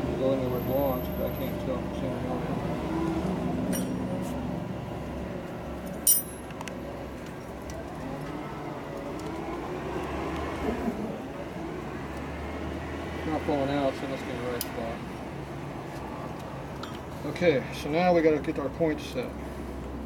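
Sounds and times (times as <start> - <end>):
sharp metallic clink: 3.7 - 4.1, 5.9 - 6.5.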